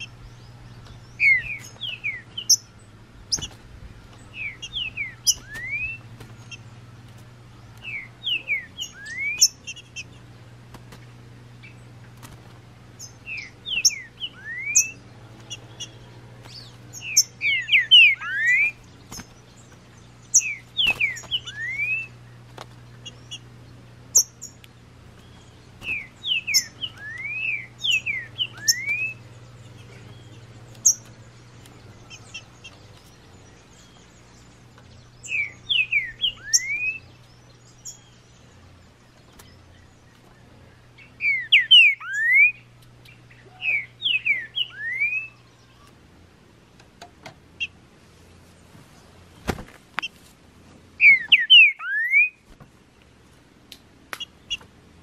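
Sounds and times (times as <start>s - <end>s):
bird singing sliding whistles: 1.0s - 2.7s, 4.3s - 6.6s, 7.8s - 9.8s, 13.0s - 22.2s, 25.2s - 29.3s, 35.2s - 37.1s, 41.2s - 42.6s, 43.4s - 45.4s, 51.0s - 52.4s.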